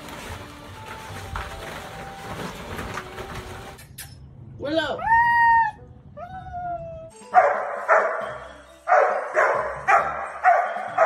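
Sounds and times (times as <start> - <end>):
dog barking: 7.3 - 11.0.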